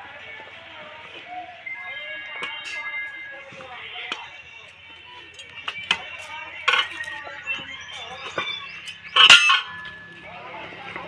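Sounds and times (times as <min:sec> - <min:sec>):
metal tools clinking on wheel: 0:02.2 - 0:11.0.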